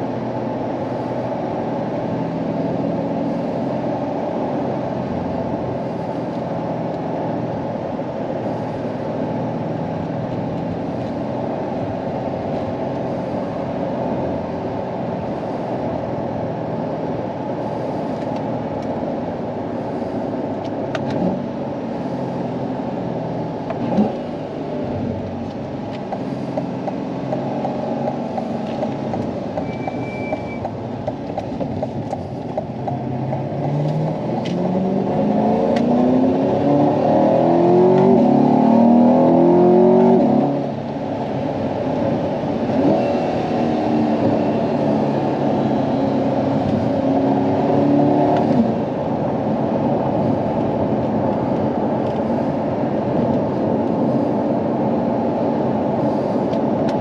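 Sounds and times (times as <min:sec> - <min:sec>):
car engine droning: 0:00.0 - 0:57.0
road noise: 0:00.0 - 0:57.0.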